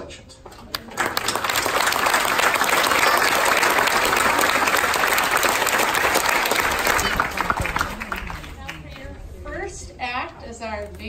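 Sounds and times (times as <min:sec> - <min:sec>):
crowd applauding: 0:00.7 - 0:09.2.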